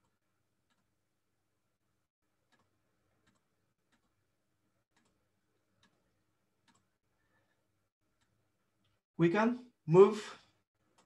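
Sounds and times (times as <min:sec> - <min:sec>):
computer mouse clicks: 0:02.4 - 0:04.2, 0:04.9 - 0:05.2, 0:05.8 - 0:07.0.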